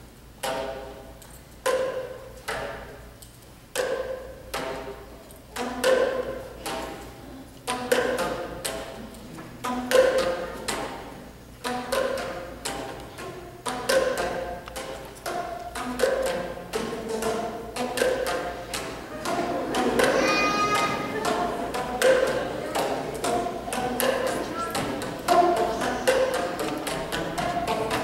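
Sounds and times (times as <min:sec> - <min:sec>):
basketballs bouncing on stage floor: 0:11.6 - 0:28.0.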